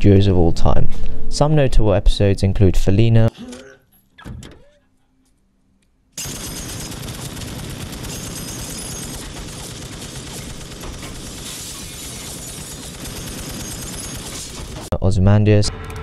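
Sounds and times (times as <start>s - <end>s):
machine-gun fire: 6.2s - 14.9s.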